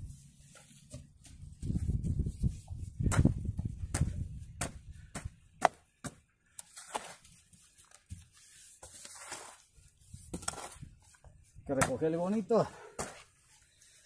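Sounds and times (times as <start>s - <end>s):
hoe striking soil: 3.0s - 7.3s, 10.3s - 10.8s
scraping of earth: 6.6s - 12.2s.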